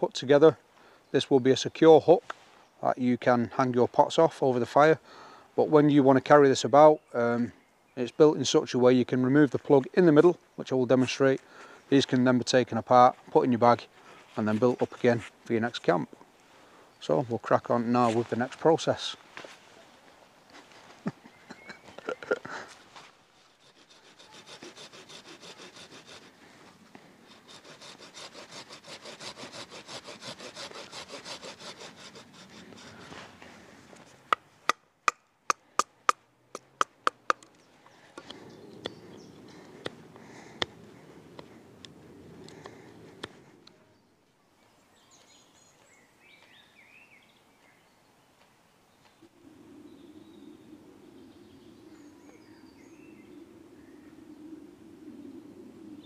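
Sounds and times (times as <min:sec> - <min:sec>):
birds chirping faintly: 0:05.0 - 0:27.2, 0:35.3 - 0:56.0
saw cutting through a branch: 0:23.4 - 0:26.4, 0:27.2 - 0:33.2
knife carving wood: 0:23.6 - 0:26.4, 0:27.2 - 0:33.2.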